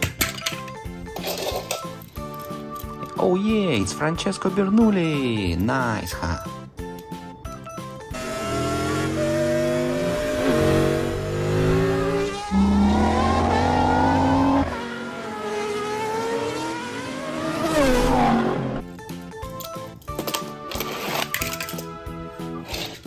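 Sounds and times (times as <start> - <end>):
race car engine revving: 8.1 - 18.8.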